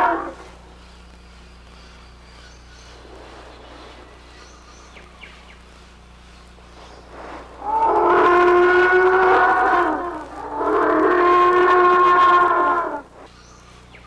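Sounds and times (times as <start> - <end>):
faint bird-like chirps: 0.4 - 8.2
dinosaur call sound effect: 7.6 - 13.1.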